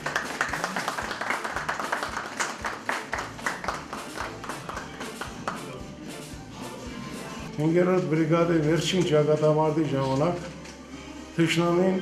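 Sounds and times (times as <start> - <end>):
small group clapping: 0.0 - 5.9.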